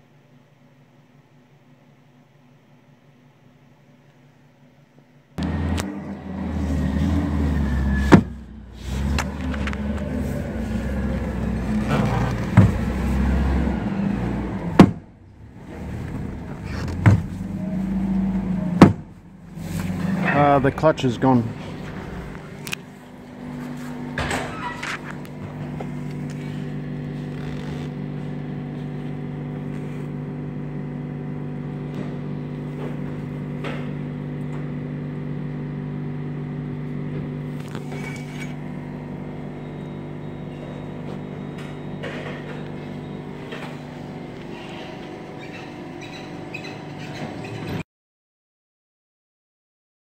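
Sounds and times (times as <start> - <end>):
diesel truck engine idling: 5.4 - 14.7, 15.3 - 24.2
engine knocks: 5.4 - 15.1, 18.3 - 19.2.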